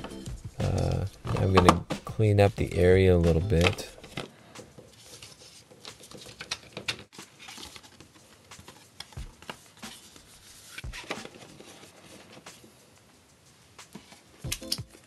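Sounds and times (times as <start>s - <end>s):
cardboard and paper rustling: 3.6s - 13.0s.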